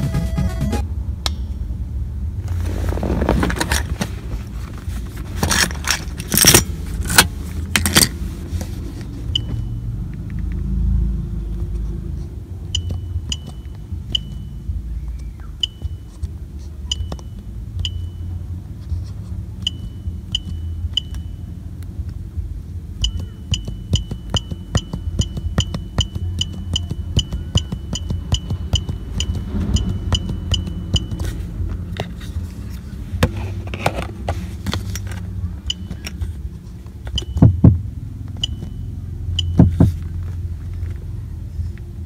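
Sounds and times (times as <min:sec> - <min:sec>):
short high beeps: 0:23.0 - 0:31.2
low rumble: 0:29.0 - 0:36.5.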